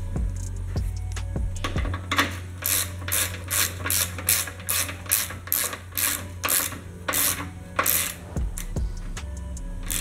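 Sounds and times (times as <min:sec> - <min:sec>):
ratchet wrench clicking: 0:01.6 - 0:08.8, 0:09.8 - 0:10.0.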